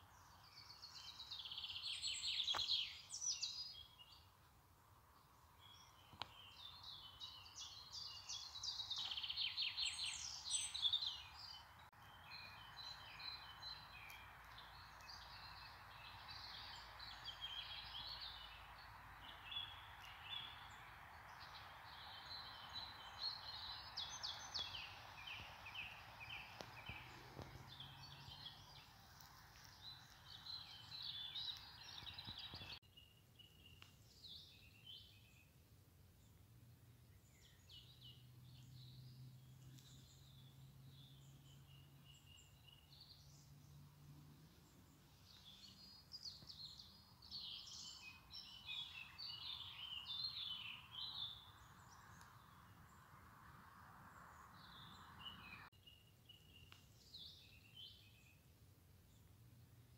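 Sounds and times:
faint steady hiss: 0.0 - 37.4
small birds chirping: 0.0 - 59.9.

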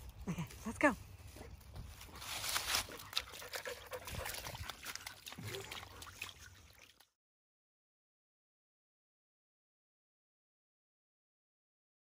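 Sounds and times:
dog splashing through water: 2.2 - 7.2
trickling water: 2.2 - 7.2.

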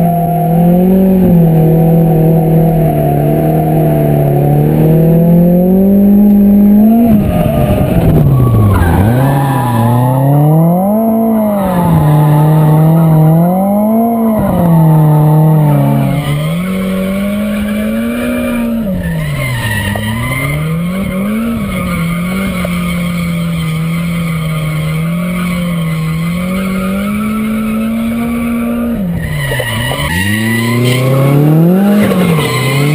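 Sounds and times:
car engine revving: 0.0 - 32.9
tyres squealing: 6.8 - 32.9.

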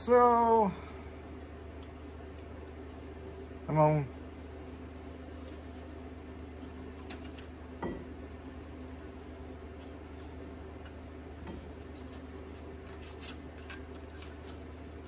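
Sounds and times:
steady low hum: 0.0 - 15.0
metallic clicks and scrapes: 12.8 - 14.6.

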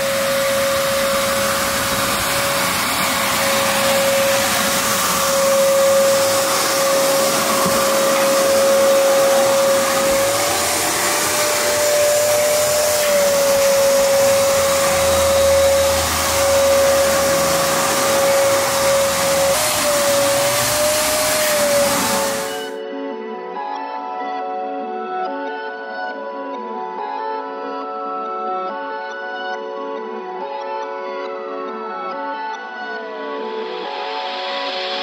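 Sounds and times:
vacuum cleaner running: 0.0 - 22.8, 33.6 - 35.0.

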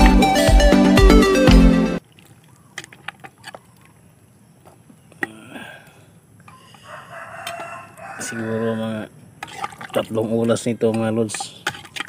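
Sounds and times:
background music: 0.0 - 2.0
ladle stirring broth in metal pot: 9.3 - 12.0.

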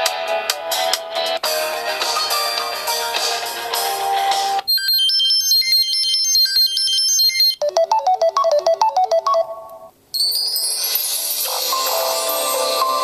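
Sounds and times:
phone ringtones playing: 4.7 - 12.8.

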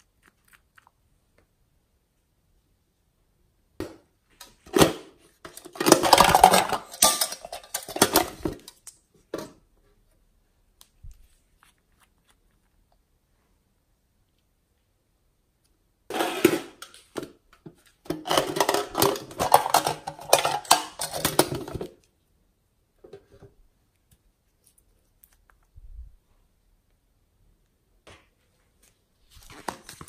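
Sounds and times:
plastic case clicking and rattling: 18.1 - 21.9.

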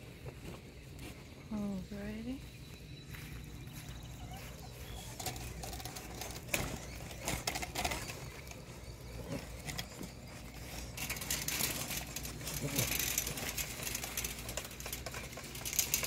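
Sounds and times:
puppies whining: 3.0 - 16.0
chain-link fence rattling: 4.2 - 16.0.

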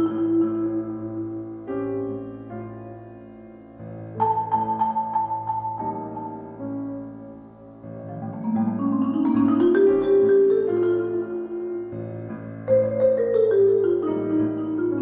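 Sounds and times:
piano accompaniment: 0.0 - 15.0
marimba played with mallets: 4.2 - 6.4, 8.1 - 11.9, 12.6 - 15.0.

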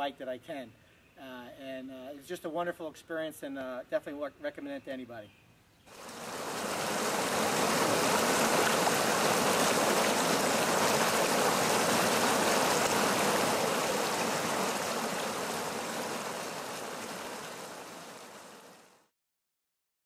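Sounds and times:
stream rushing over rocks: 5.9 - 19.0.

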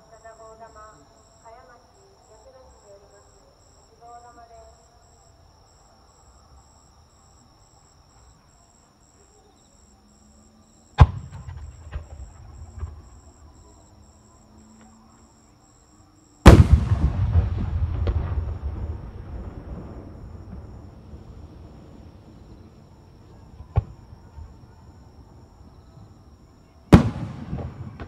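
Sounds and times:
firework booms: 11.0 - 13.5, 16.4 - 24.7, 26.9 - 28.0
firework crackling rumble: 16.5 - 24.1, 26.9 - 28.0.

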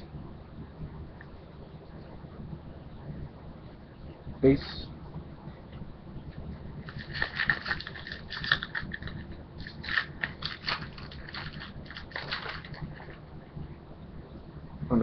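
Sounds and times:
foil wrapper tearing and crinkling: 6.8 - 13.2.

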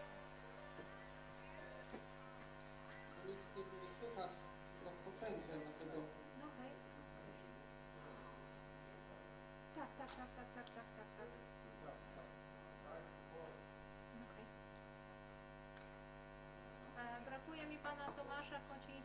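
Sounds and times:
faint voices: 0.0 - 8.5
steady mains hum: 0.0 - 19.0.

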